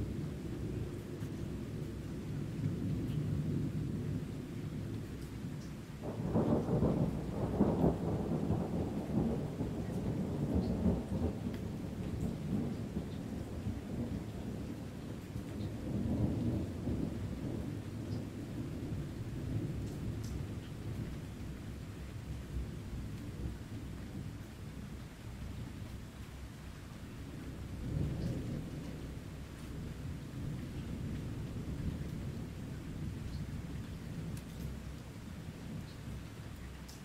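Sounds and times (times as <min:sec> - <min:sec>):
steady rain: 0:00.0 - 0:37.0
rolling thunder: 0:06.0 - 0:25.7, 0:27.3 - 0:34.9.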